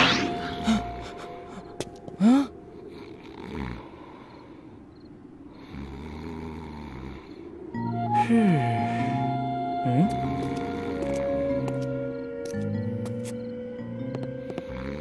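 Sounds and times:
cartoon snoring: 0:05.6 - 0:07.4.

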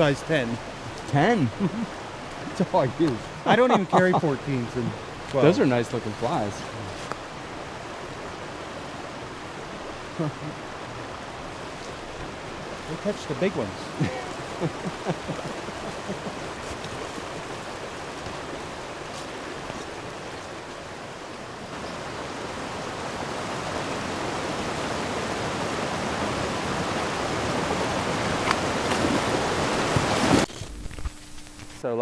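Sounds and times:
brook rushing over rocks: 0:11.3 - 0:31.1.

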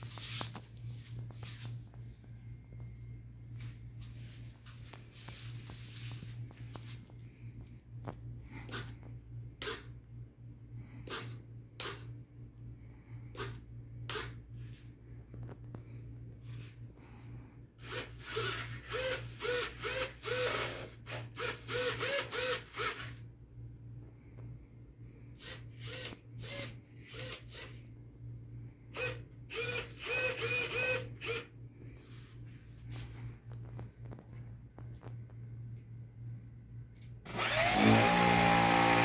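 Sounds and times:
steady low hum: 0:00.0 - 0:39.0
servo motors whining: 0:37.3 - 0:39.0.

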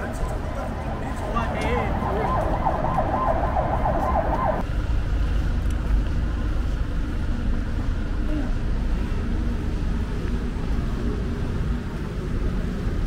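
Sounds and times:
electronic siren warbling: 0:00.0 - 0:04.6
steady low rumble: 0:00.0 - 0:13.0.

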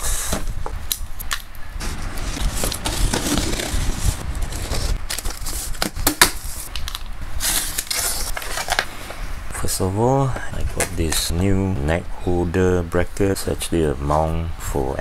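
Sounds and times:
cardboard crackling and scraping: 0:01.8 - 0:06.7.

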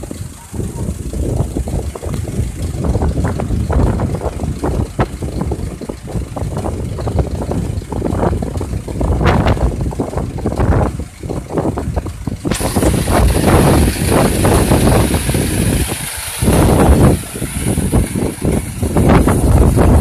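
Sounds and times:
bus engine rumbling: 0:00.0 - 0:20.0
steady hiss: 0:12.5 - 0:20.0.

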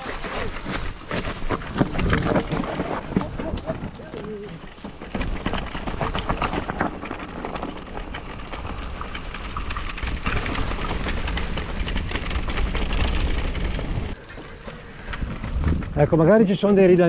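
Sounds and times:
wind rumbling on microphone: 0:00.0 - 0:16.4
bike tyre rumble on dirt: 0:00.0 - 0:17.0
chain and frame rattling: 0:03.0 - 0:16.0.

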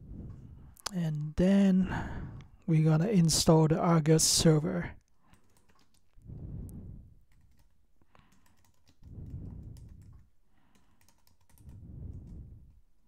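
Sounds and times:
low muffled rumbles: 0:06.2 - 0:07.2, 0:09.1 - 0:10.3, 0:11.7 - 0:12.8.

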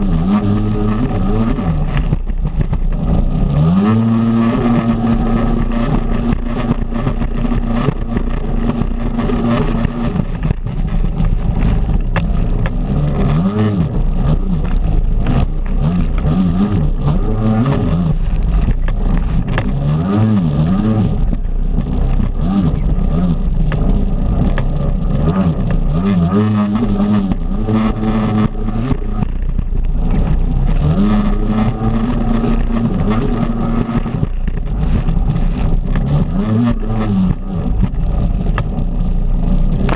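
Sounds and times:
jet ski engine revving: 0:00.0 - 0:39.9
water splashing against hull: 0:00.5 - 0:03.6, 0:04.2 - 0:17.0, 0:18.0 - 0:19.9, 0:26.6 - 0:36.1.

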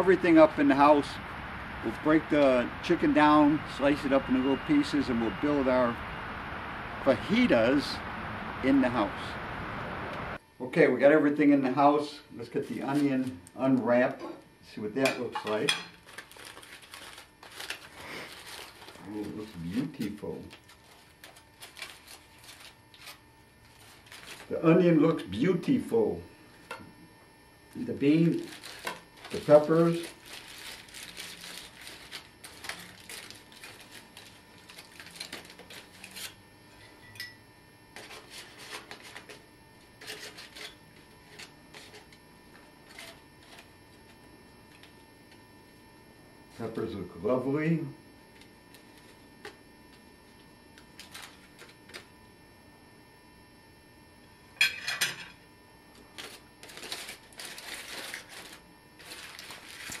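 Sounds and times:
aluminum foil crinkling: 0:15.4 - 0:24.6, 0:27.7 - 0:36.4, 0:38.0 - 0:45.4, 0:48.3 - 0:52.1, 0:55.9 - 1:00.0.

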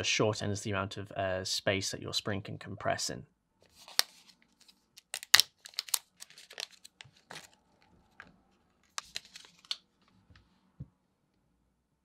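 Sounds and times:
plastic packet tearing and crinkling: 0:03.7 - 0:09.8.

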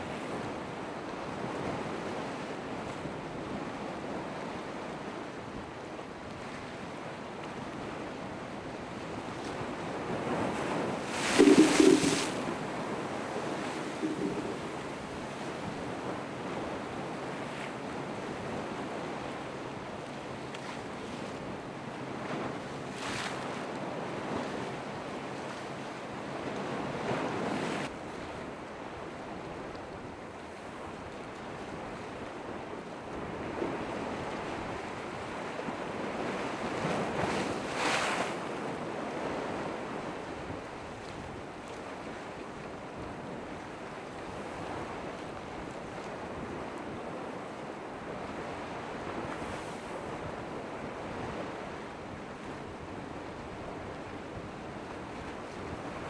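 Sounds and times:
wind buffeting microphone: 0:09.6 - 0:17.2
ocean waves breaking: 0:09.6 - 0:18.1.

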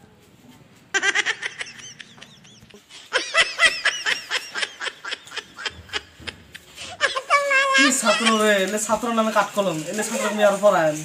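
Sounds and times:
high-pitched laughter: 0:00.9 - 0:08.7.

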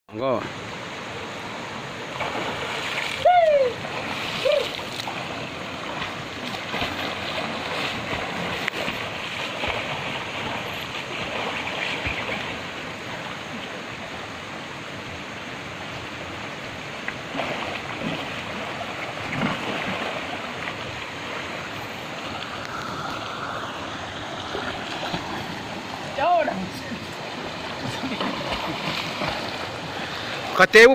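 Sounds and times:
river water rushing: 0:00.1 - 0:30.9
people splashing while swimming: 0:02.2 - 0:12.6, 0:27.6 - 0:30.6.

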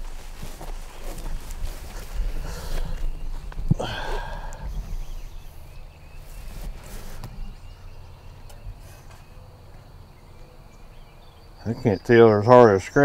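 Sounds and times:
faint rustling: 0:00.0 - 0:10.5.

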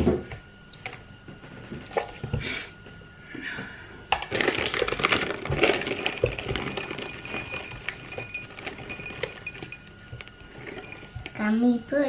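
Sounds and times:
metal mixer beaters clinking: 0:04.5 - 0:11.4.

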